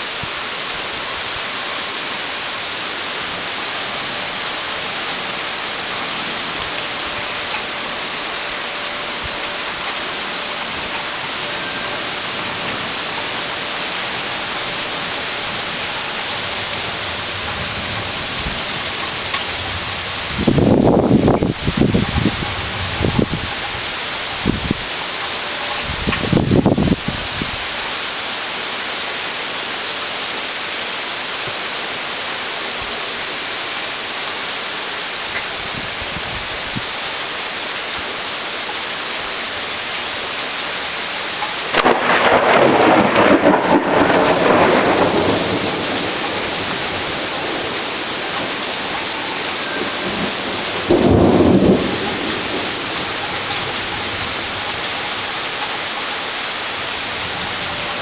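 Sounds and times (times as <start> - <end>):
steady rain: 0.0 - 58.0
thunder rumbling: 3.4 - 24.9, 41.7 - 55.0.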